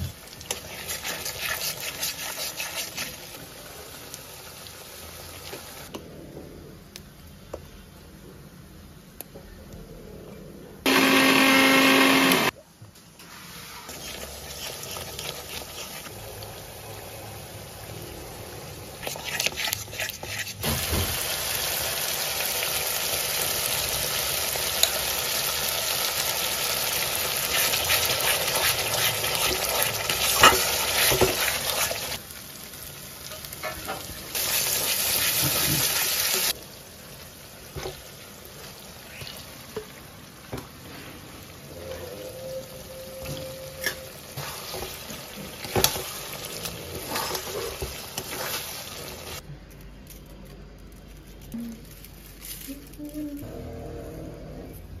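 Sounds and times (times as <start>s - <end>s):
food sizzling in hot oil: 0.0s - 5.9s, 13.2s - 41.8s, 42.6s - 49.4s
stirring: 0.4s - 3.3s, 13.9s - 16.1s, 19.0s - 20.6s, 27.5s - 32.2s, 43.8s - 49.4s.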